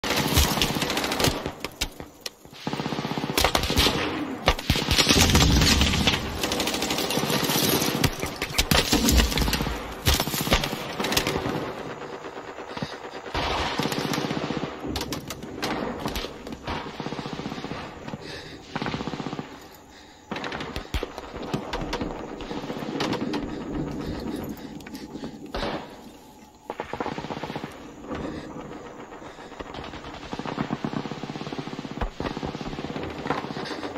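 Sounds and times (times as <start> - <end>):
gunshots: 0.0 - 33.9
machine-gun fire: 2.5 - 19.6, 26.7 - 33.9.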